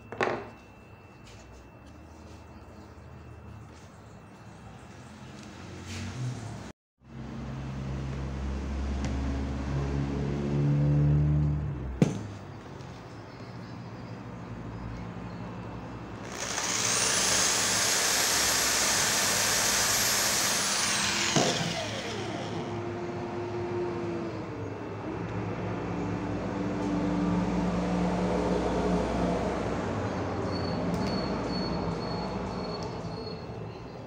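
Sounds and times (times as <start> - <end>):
power drill whining: 16.2 - 23.0.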